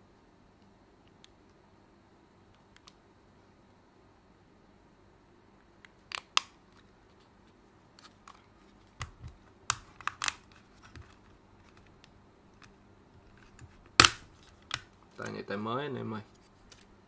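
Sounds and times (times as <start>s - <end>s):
plastic clips clicking and snapping: 9.0s - 10.5s, 13.4s - 15.4s.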